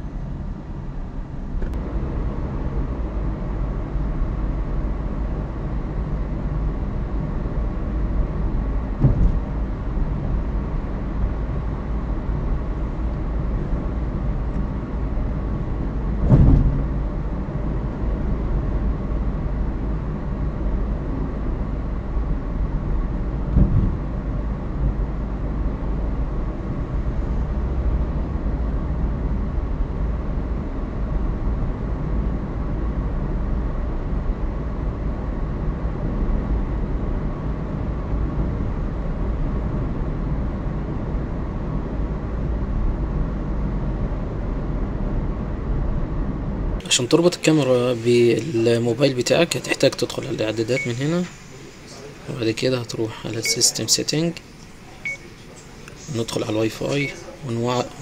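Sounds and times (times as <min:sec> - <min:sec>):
car road and engine rumble: 0:00.0 - 0:58.0
brief thumps: 0:09.0 - 0:09.4, 0:16.2 - 0:17.0, 0:23.5 - 0:24.0.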